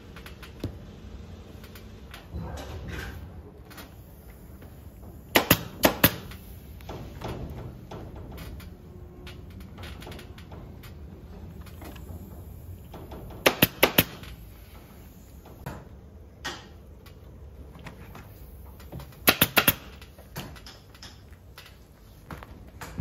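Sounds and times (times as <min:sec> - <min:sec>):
pneumatic stapler firing: 0:05.3 - 0:08.5, 0:12.9 - 0:14.5, 0:19.0 - 0:20.8.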